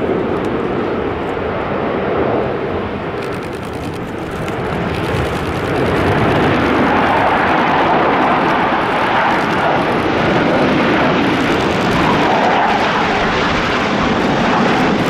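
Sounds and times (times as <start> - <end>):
jet engines overhead: 0.0 - 15.0.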